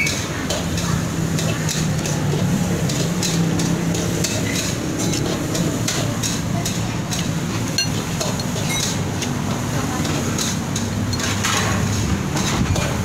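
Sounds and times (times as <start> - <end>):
dishes and utensils clattering: 0.0 - 13.0
eatery din: 0.0 - 13.0.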